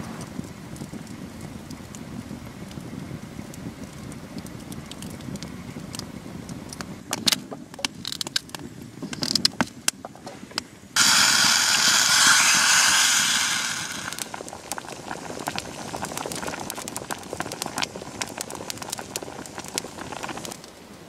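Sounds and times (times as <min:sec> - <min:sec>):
campfire crackling and popping: 0:00.1 - 0:10.0, 0:11.0 - 0:21.0
water pouring into a steel pot: 0:11.0 - 0:14.4.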